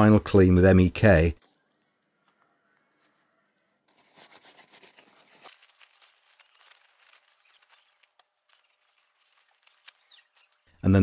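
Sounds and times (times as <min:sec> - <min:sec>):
paper tissue rustling: 0:02.8 - 0:10.8.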